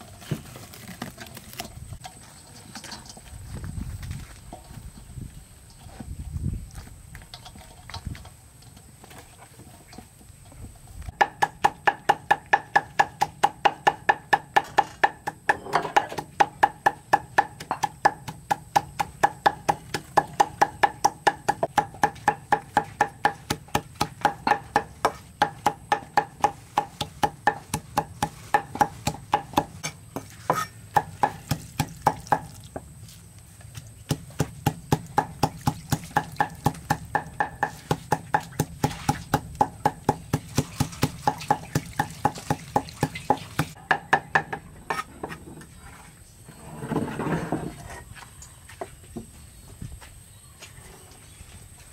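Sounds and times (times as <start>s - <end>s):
cleaver chopping on wooden block: 11.1s - 32.5s, 34.1s - 44.6s.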